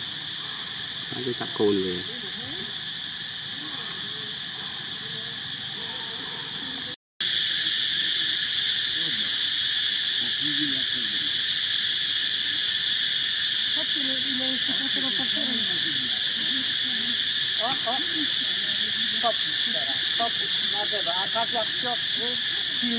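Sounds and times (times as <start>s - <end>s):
insect chorus drone: 0.0s - 22.9s.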